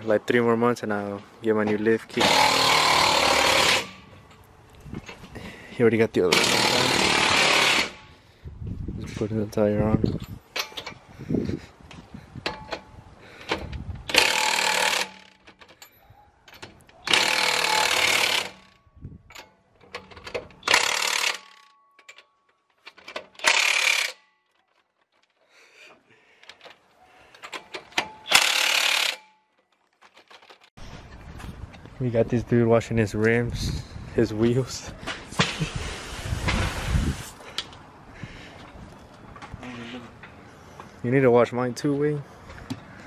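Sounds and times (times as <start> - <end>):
pneumatic impact wrench bursts: 2.2 - 4.1, 6.3 - 8.2, 13.4 - 15.4, 17.0 - 18.8, 20.6 - 21.7, 23.4 - 24.2, 28.0 - 29.3.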